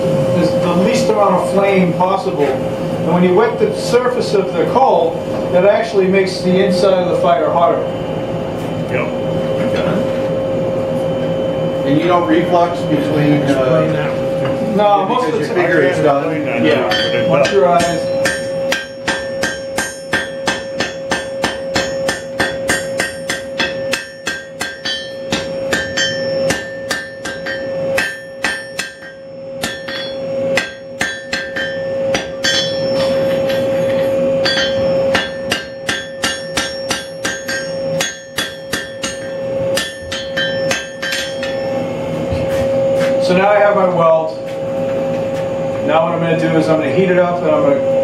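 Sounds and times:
anvil ringing: 16.7s - 41.8s
hammer striking steel on anvil: 16.8s - 41.8s.

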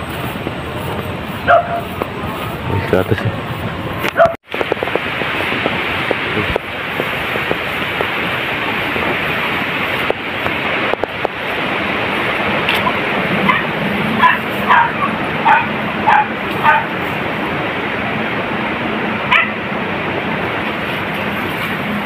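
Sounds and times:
wind noise on microphone: 0.0s - 22.0s
dog barking: 1.4s - 2.0s, 4.1s - 4.4s, 12.8s - 17.0s, 19.3s - 19.6s.

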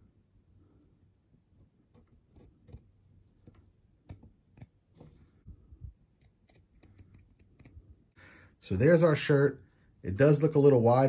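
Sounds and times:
small scissors snipping fabric: 1.8s - 4.7s, 6.1s - 7.8s.

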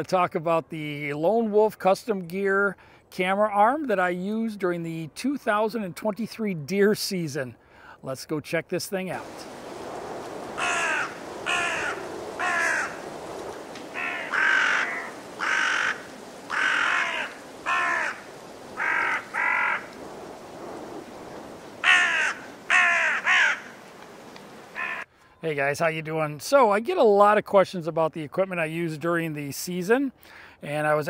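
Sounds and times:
crow cawing: 10.5s - 20.0s, 21.8s - 23.8s, 24.7s - 25.1s.

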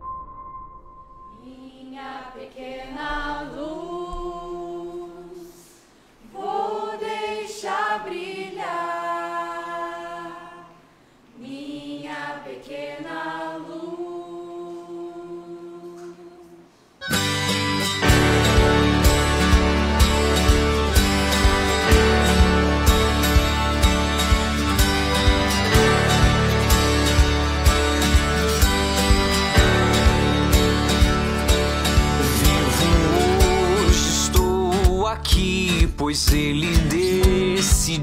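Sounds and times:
band playing: 17.0s - 38.0s
strummed acoustic guitar: 17.0s - 38.0s.

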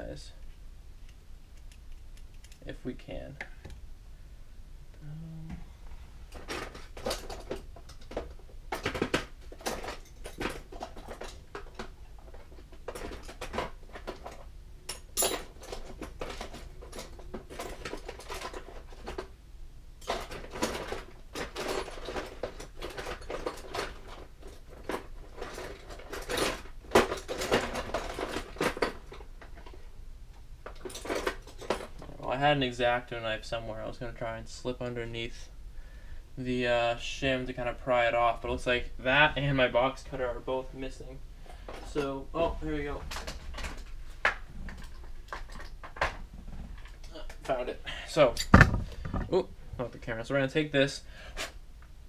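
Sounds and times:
tools clattering on workbench: 6.4s - 19.3s, 48.4s - 49.4s.

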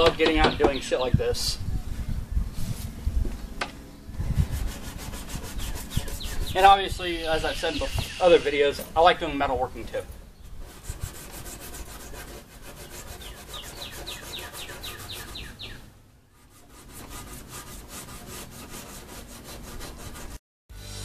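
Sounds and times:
sandpaper rubbing on wood: 4.2s - 8.7s, 10.6s - 15.8s, 16.4s - 20.4s.

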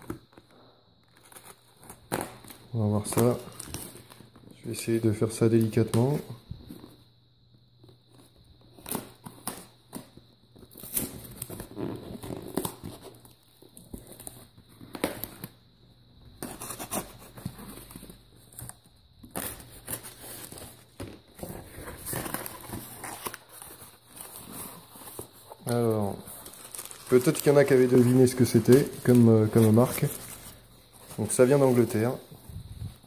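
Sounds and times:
tape tearing: 10.7s - 13.4s
cardboard scraping and rustling: 19.3s - 33.0s.

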